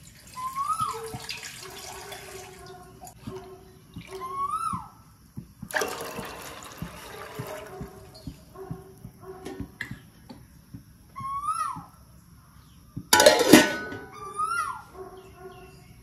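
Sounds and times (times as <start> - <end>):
water pouring into a pot: 0.0 - 2.7, 5.7 - 8.2
bird whistled calls: 0.3 - 1.2, 4.1 - 5.0, 11.1 - 12.0, 14.1 - 14.9.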